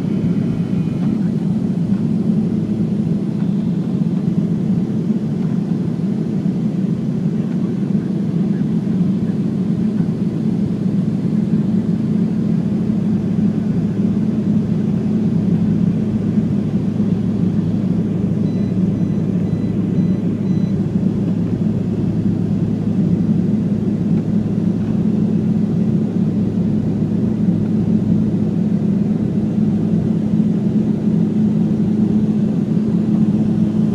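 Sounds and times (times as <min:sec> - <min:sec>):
jet engines droning: 0:00.0 - 0:33.9
low steady hum: 0:11.2 - 0:33.9.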